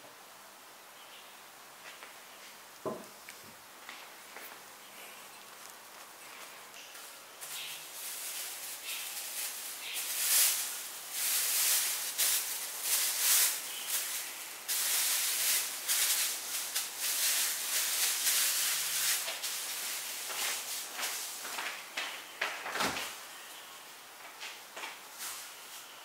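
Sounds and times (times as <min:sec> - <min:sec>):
plastic bag crinkling: 0:05.0 - 0:23.3.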